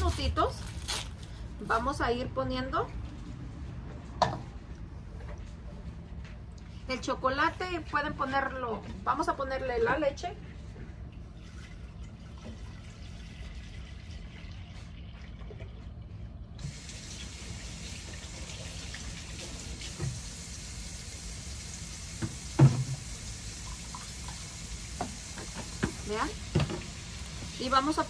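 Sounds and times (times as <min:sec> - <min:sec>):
thump: 0:22.2 - 0:23.0.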